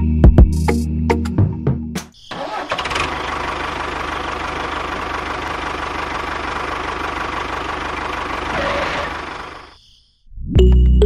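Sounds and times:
tractor engine idling: 0:02.3 - 0:09.7.

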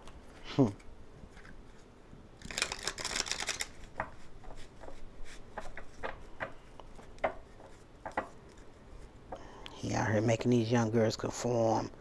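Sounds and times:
cards shuffling: 0:00.0 - 0:06.2
cards clicking and tapping: 0:02.4 - 0:08.7.

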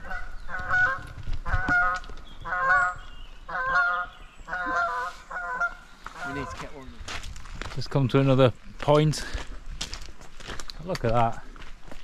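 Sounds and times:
geese honking: 0:00.0 - 0:06.8.

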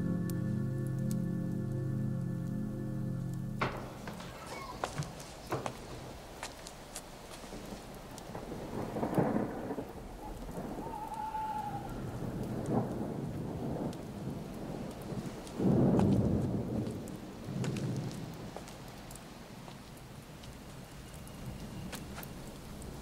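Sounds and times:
steady rain: 0:00.0 - 0:23.0
thunder rolling: 0:03.6 - 0:06.4, 0:07.4 - 0:18.6.

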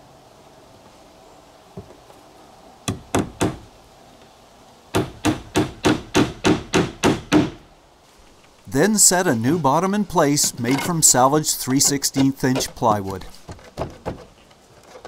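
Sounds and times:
hammer driving nails into wood: 0:05.0 - 0:07.6.

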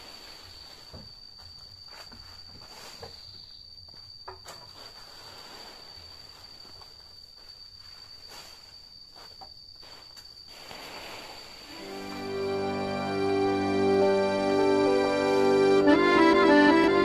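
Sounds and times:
insect droning: 0:00.0 - 0:17.0.

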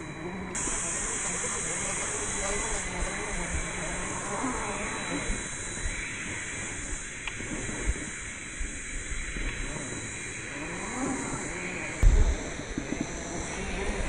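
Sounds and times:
steady outdoor hiss: 0:00.0 - 0:14.0.

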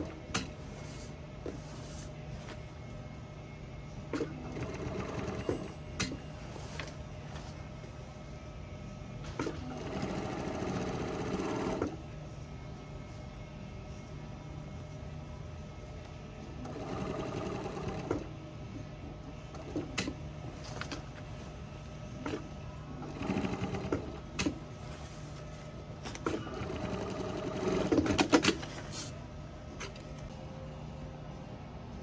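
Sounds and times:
sewing machine stitching: 0:26.2 - 0:28.6.

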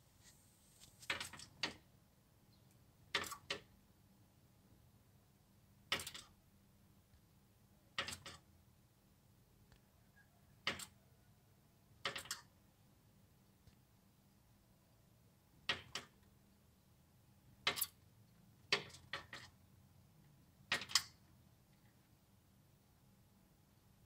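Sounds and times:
bird tapping on window glass: 0:03.1 - 0:03.7, 0:08.0 - 0:08.4, 0:12.0 - 0:12.5, 0:15.6 - 0:16.2, 0:18.7 - 0:19.5, 0:20.7 - 0:21.2.

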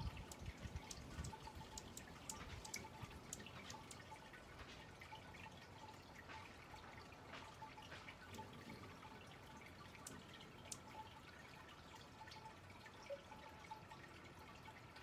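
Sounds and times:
faint high-pitched ticks: 0:00.0 - 0:04.9, 0:09.9 - 0:10.9.

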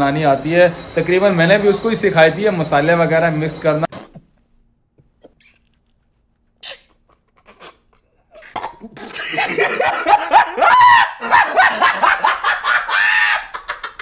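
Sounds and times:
man laughing loudly: 0:08.8 - 0:14.0.

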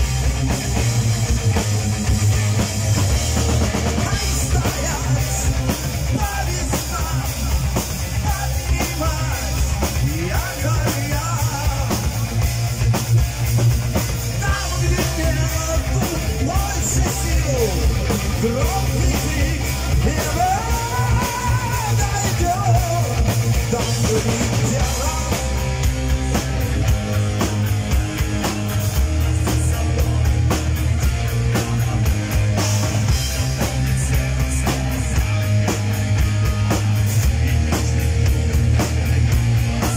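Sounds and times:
drum kit beat: 0:00.0 - 0:39.9
electric guitars: 0:00.0 - 0:39.9
heavy metal band playing: 0:00.0 - 0:39.9
man singing: 0:03.9 - 0:12.4, 0:14.3 - 0:26.3, 0:28.7 - 0:35.4.

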